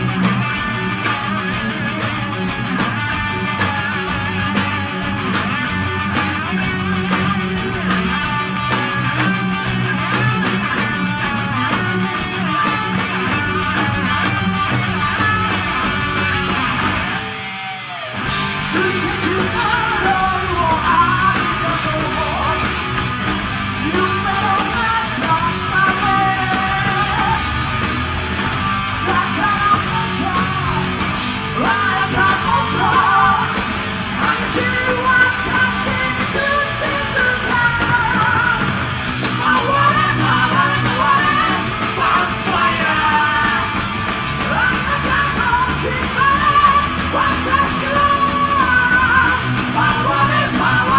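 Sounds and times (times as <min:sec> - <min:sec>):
distorted electric guitars: 0:00.0 - 0:50.9
drums: 0:00.0 - 0:50.9
person yelling singing: 0:18.6 - 0:22.8, 0:23.8 - 0:27.6, 0:29.0 - 0:43.8, 0:44.4 - 0:50.9.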